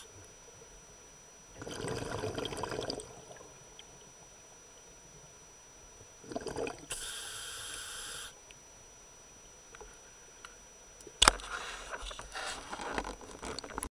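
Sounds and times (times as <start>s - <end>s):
exhaled bubbles bubbling: 1.5s - 3.6s, 6.2s - 7.0s
regulator inhalation hiss: 6.9s - 8.4s.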